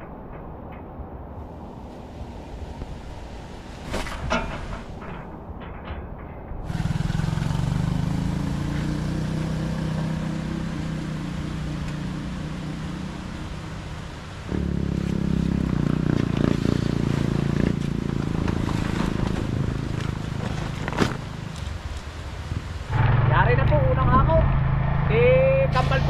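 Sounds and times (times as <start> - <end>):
vehicle engine running: 6.6 - 22.0, 22.9 - 26.0.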